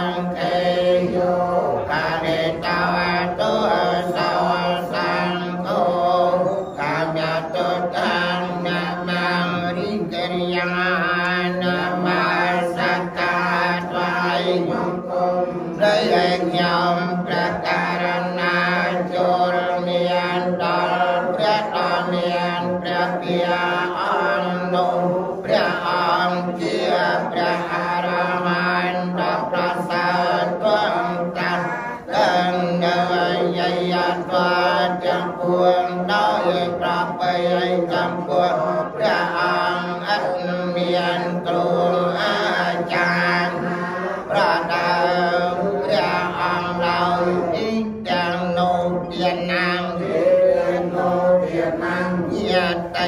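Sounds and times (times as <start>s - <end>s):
monks chanting: 0.0s - 53.0s.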